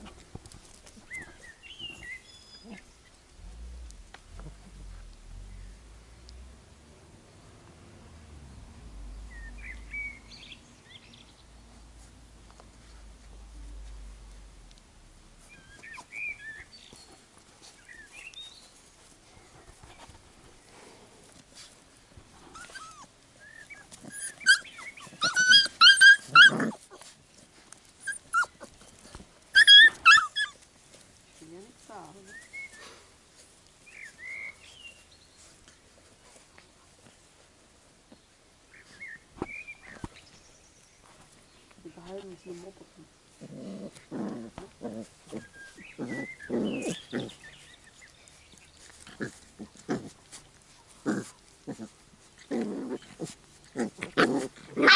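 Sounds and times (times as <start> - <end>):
puppies growling and grunting: 2.6 - 6.1, 22.4 - 27.2, 43.3 - 54.9
puppies yapping: 22.5 - 27.2, 28.0 - 30.6, 52.8 - 54.9.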